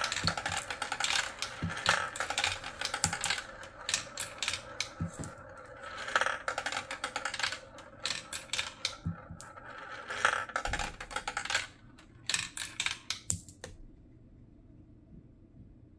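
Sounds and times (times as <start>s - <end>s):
glass marbles clacking: 0.0s - 11.7s.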